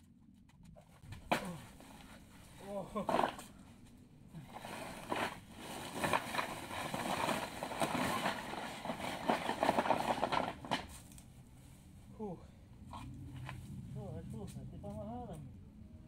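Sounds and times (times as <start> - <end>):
stones clattering on paving: 2.9 - 3.6, 4.5 - 11.2
plastic sack rustling: 4.4 - 11.1.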